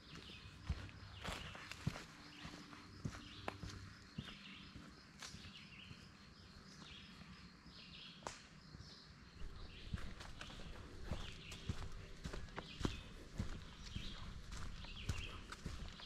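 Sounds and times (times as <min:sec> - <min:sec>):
birds calling: 0:09.4 - 0:16.0
footsteps: 0:09.4 - 0:16.0.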